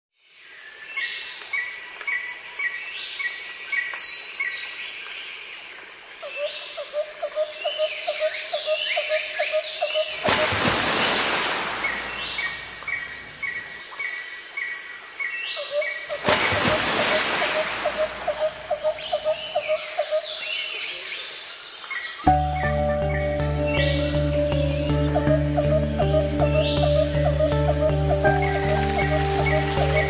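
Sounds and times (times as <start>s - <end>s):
birds chirping and whistling: 22.3s - 30.0s.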